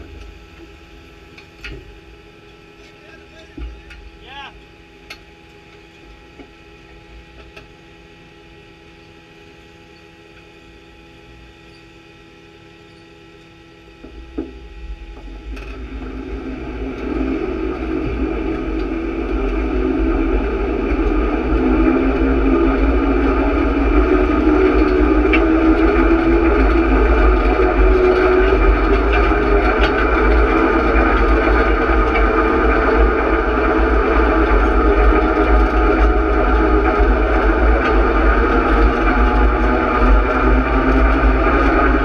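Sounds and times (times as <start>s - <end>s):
tractor engine running: 14.0s - 42.0s.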